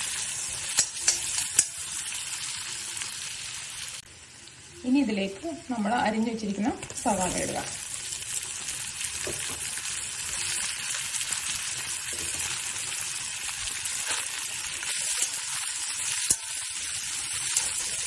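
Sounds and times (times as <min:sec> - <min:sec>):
onions sizzling in butter: 0:00.0 - 0:18.0.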